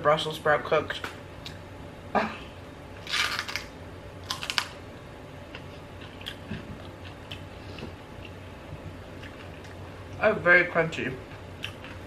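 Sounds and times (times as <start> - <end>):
crunching and chewing: 3.0 - 4.8, 5.5 - 8.4, 9.1 - 9.8, 11.3 - 12.0.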